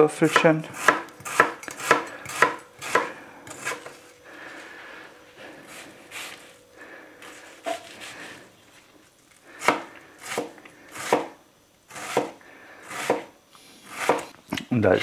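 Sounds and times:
knife chopping onion: 0:00.1 - 0:03.9, 0:09.6 - 0:13.3, 0:13.9 - 0:14.3.

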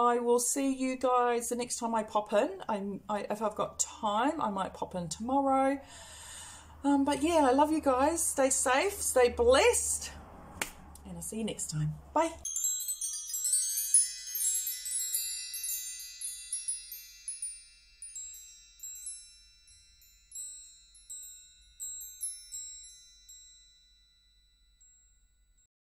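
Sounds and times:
wind chimes tinkling: 0:12.4 - 0:25.7.

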